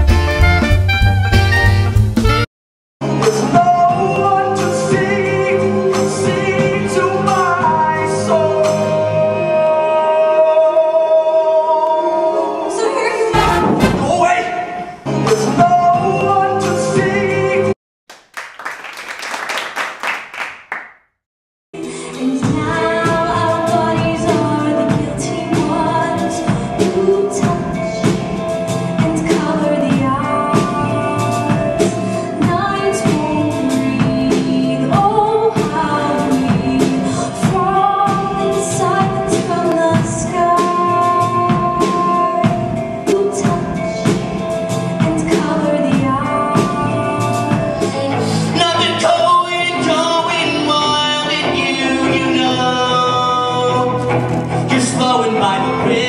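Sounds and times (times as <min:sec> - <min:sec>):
band with drum beat: 0:00.0 - 0:02.5, 0:13.4 - 0:14.4, 0:22.4 - 0:48.3
woman singing into microphone: 0:21.8 - 0:28.4, 0:29.0 - 0:44.3, 0:45.0 - 0:52.4.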